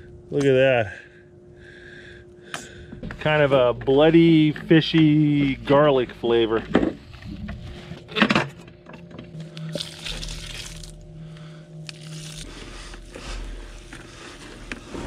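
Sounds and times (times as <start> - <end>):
hands squelching wet bait: 9.5 - 11.0, 11.8 - 14.0
corn kernels poured: 9.7 - 11.0.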